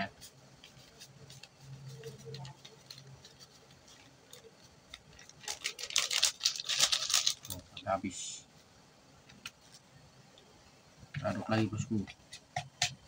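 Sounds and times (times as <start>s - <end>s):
bait rattling rustle: 1.1s - 7.8s.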